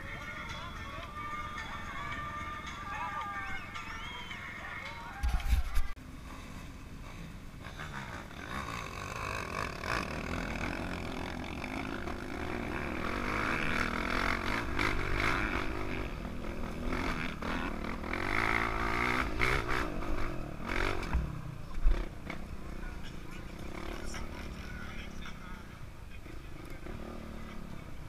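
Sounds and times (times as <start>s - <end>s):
dirt bike engine revving: 7.0s - 25.4s, 26.6s - 28.0s.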